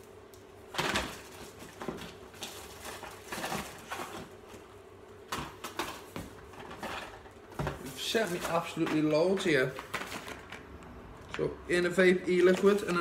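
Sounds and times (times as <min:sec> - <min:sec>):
packaging rustling and clattering: 0:00.7 - 0:04.7, 0:05.3 - 0:10.6, 0:12.4 - 0:13.0.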